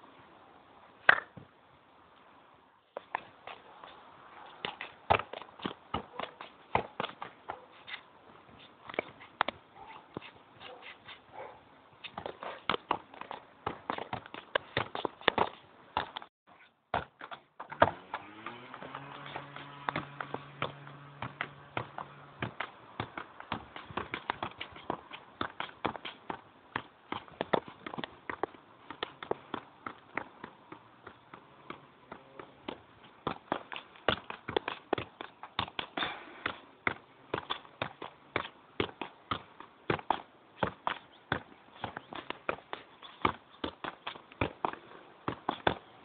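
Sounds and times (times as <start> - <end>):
football bouncing on concrete: 1.1 - 1.5, 3.0 - 7.6, 12.1 - 16.3, 16.9 - 46.0
shoe scuffs: 6.1 - 12.7.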